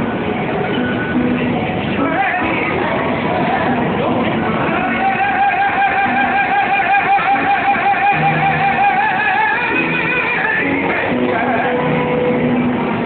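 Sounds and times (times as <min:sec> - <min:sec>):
plucked guitar accompaniment: 0:00.0 - 0:13.0
man singing opera: 0:01.9 - 0:12.4.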